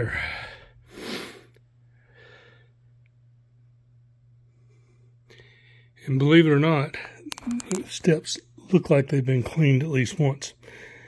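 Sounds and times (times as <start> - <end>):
faint breaths: 0.0 - 2.9, 4.4 - 6.0, 10.6 - 11.0
low steady hum: 0.0 - 11.0.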